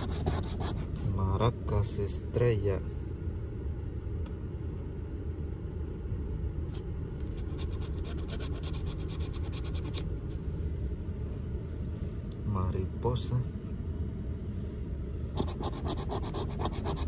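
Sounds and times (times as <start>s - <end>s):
coin scratching lottery ticket: 0.0s - 0.9s, 7.3s - 10.0s, 15.3s - 17.0s
steady low rumble: 0.0s - 17.0s.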